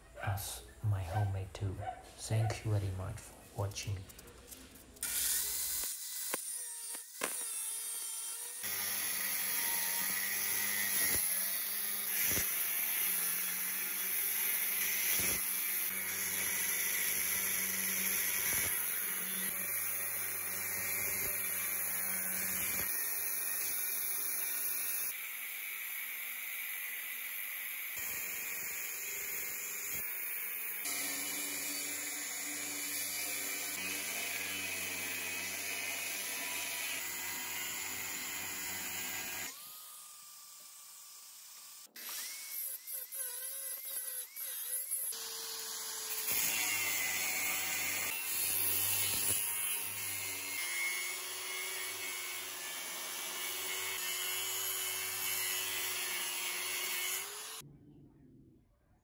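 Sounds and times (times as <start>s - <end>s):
angle grinder cutting steel: 5.0s - 57.6s.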